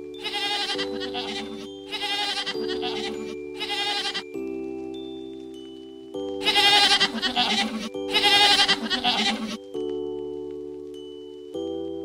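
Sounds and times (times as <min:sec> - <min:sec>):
background music: 0:00.0 - 0:12.0
goat bleating: 0:00.2 - 0:04.2, 0:06.4 - 0:09.6.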